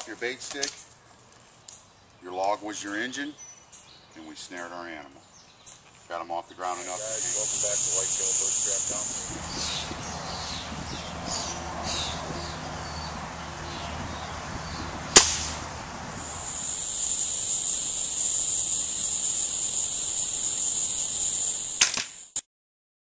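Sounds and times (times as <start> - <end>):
insect chirping: 6.7 - 10.7, 16.1 - 22.4
high-pitched insect drone: 6.8 - 10.0, 16.2 - 22.4
rifle shot: 15.1 - 15.6.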